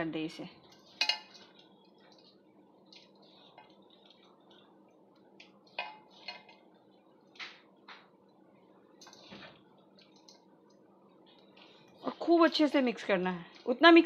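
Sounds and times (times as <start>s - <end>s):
clinks and scrapes on steel bowl: 0.6s - 4.7s, 5.4s - 6.6s.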